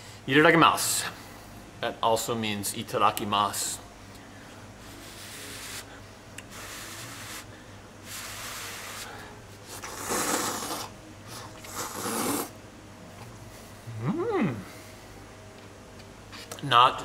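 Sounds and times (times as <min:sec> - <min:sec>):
man slurping noodles: 0:09.7 - 0:12.5.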